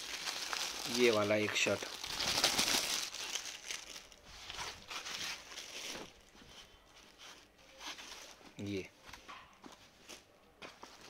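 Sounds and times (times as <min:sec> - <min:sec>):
cloth rustling and crumpling: 0:00.0 - 0:08.4.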